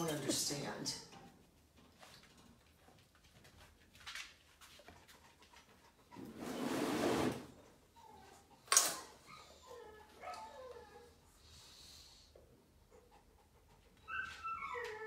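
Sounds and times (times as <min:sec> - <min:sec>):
dog whining: 0:07.6 - 0:11.2, 0:14.0 - 0:15.0.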